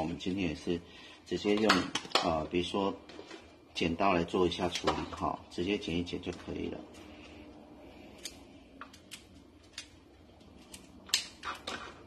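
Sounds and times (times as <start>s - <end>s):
scissors snipping: 8.2s - 9.9s.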